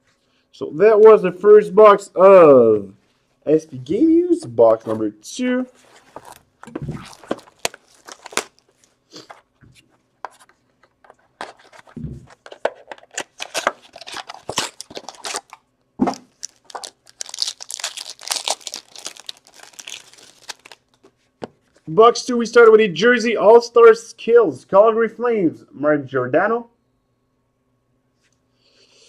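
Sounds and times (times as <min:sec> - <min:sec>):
plastic wrapping tearing and crinkling: 0:06.0 - 0:09.4, 0:11.4 - 0:21.1.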